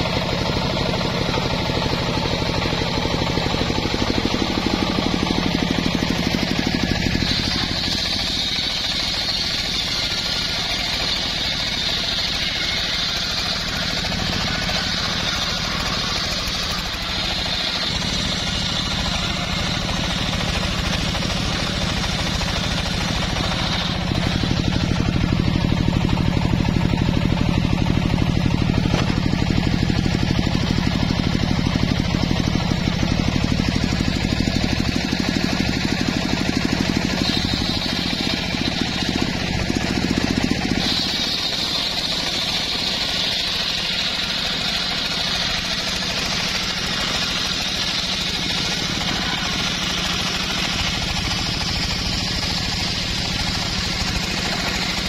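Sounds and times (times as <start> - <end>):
saw bench engine running: 0.0 - 55.0
saw blade cutting hiss: 0.1 - 31.6, 32.2 - 55.0.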